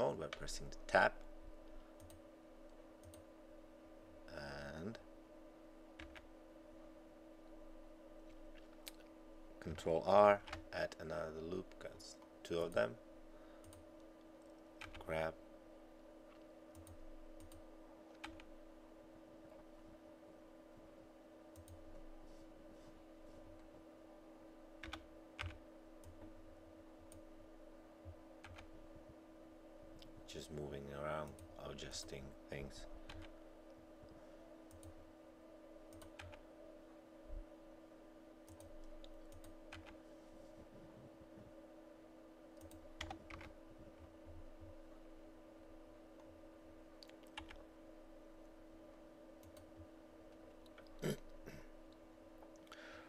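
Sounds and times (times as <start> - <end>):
steady low hum: 0.0 - 53.0
keyboard and mouse clicks: 6.0 - 6.2, 16.3 - 18.5, 35.9 - 36.4, 47.0 - 47.6.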